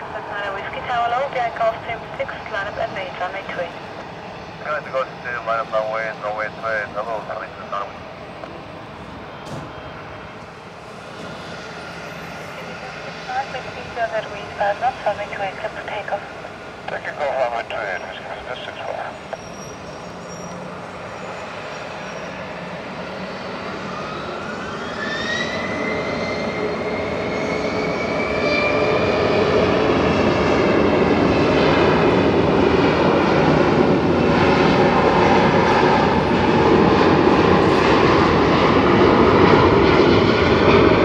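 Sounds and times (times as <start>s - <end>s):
jet engines spooling up: 0.0s - 41.0s.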